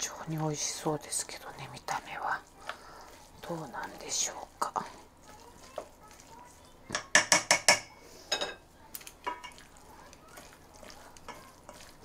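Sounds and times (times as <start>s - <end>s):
utensils clinking on steel bowl: 2.6s - 12.0s.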